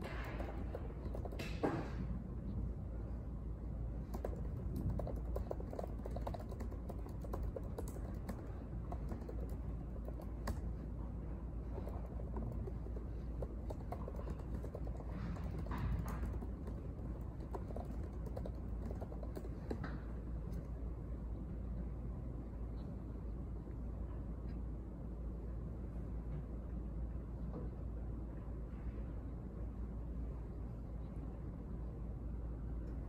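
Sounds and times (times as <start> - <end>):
laptop keyboard typing: 0.0 - 1.8, 4.0 - 10.8, 11.6 - 20.7
low room hum: 0.0 - 33.0.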